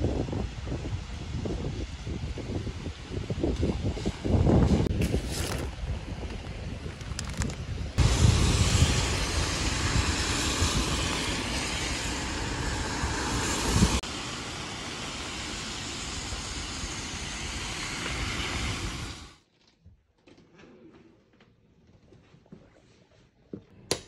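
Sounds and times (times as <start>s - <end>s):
low traffic rumble: 0.0s - 19.3s
rain hiss: 0.0s - 19.4s
tyres hissing on wet road: 8.0s - 19.4s.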